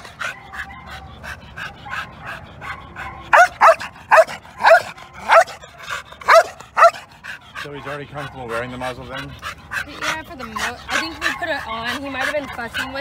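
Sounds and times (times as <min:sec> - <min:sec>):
dog barking loudly: 0:00.0 - 0:13.0
dog yipping: 0:00.0 - 0:13.0.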